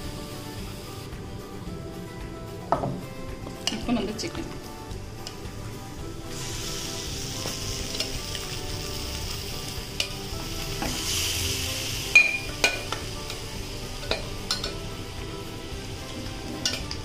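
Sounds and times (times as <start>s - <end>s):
faint background music: 0.0s - 17.0s
chicken sizzling in a pan: 5.2s - 17.0s.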